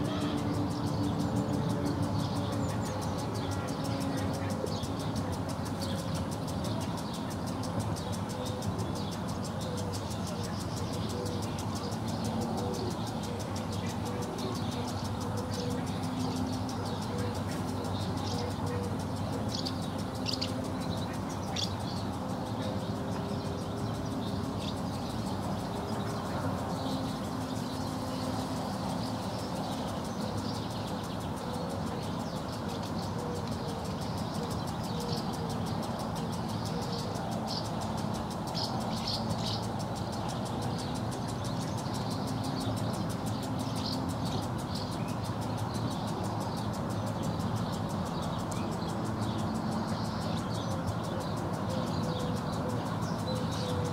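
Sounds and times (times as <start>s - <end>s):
birds twittering: 0.0s - 53.9s
distant traffic hum: 0.0s - 53.9s.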